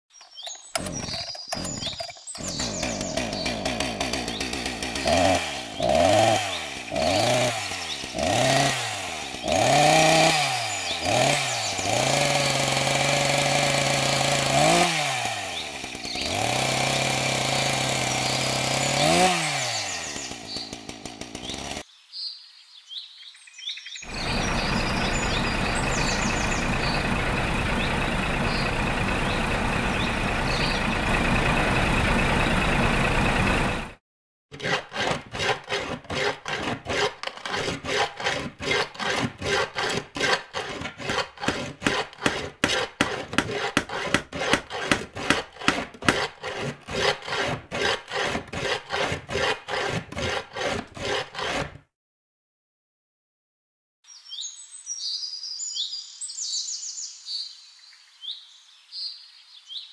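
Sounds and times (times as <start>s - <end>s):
birds chirping: 0.1s - 12.3s, 15.5s - 16.4s, 18.1s - 31.5s
hand tool working wood: 0.4s - 21.8s, 34.5s - 51.9s
power tool running: 0.7s - 21.8s, 24.1s - 51.8s.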